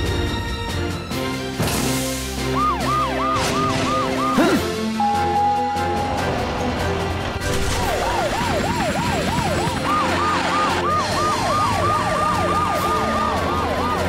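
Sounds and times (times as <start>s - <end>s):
cartoon sirens wailing: 2.4s - 6.3s, 7.8s - 14.0s.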